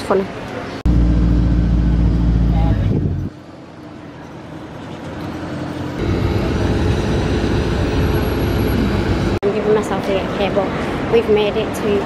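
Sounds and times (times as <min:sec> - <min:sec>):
aircraft and vehicles droning: 0:00.9 - 0:11.1
steady low hum: 0:06.0 - 0:09.4.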